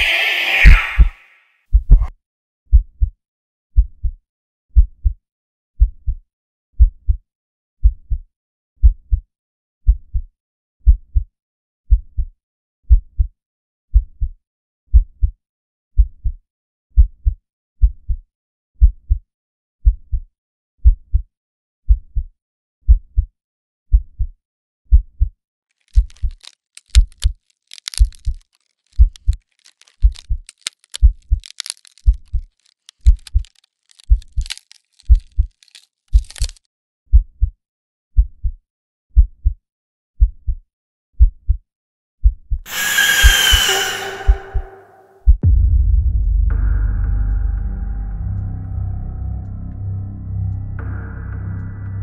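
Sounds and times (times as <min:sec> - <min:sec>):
heartbeat thumps: 0:01.7 - 0:02.1, 0:18.8 - 0:19.2.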